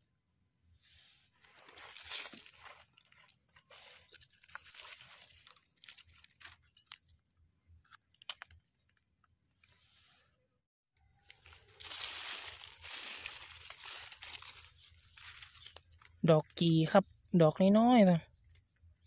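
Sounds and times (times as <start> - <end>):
leaf litter crunching and rustling: 1.4 - 7.0, 11.2 - 16.2.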